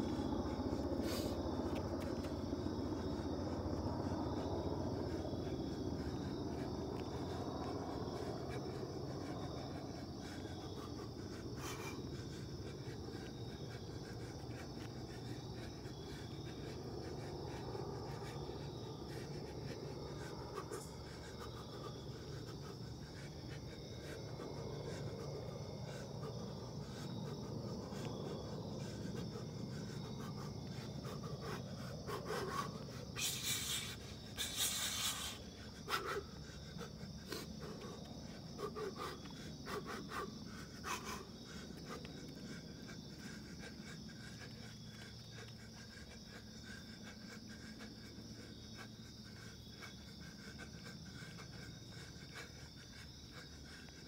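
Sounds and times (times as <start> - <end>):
low background rumble: 0.0 - 34.5
high-pitched insect chorus: 0.0 - 54.0.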